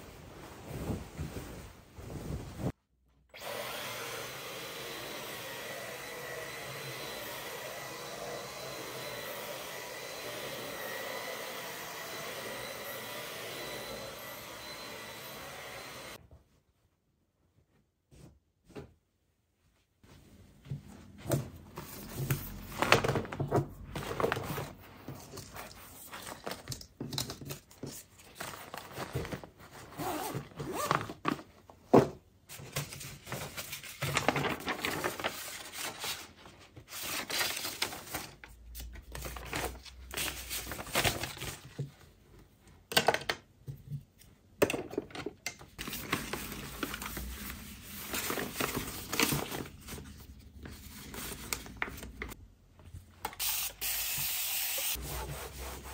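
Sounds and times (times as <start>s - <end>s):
crinkling and rustling: 0.0s - 2.8s, 19.6s - 43.0s, 43.7s - 53.3s.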